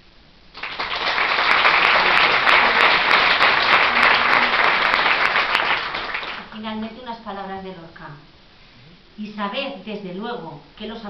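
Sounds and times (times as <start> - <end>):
audience applauding: 0.5 - 6.6.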